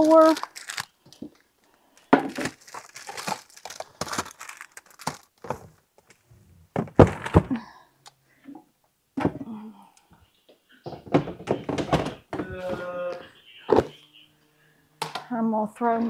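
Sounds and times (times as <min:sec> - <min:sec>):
plastic bag crinkling: 0:00.0 - 0:06.2
items knocking together: 0:02.0 - 0:07.6.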